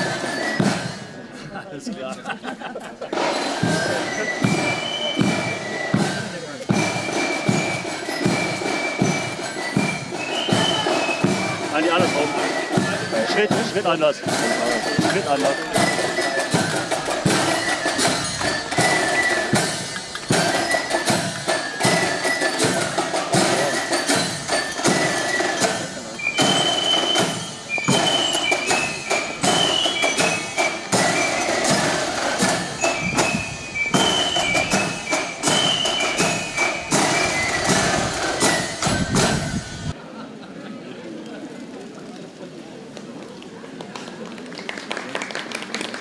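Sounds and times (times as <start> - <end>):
marching band playing: 0.0 - 1.4, 3.0 - 40.0.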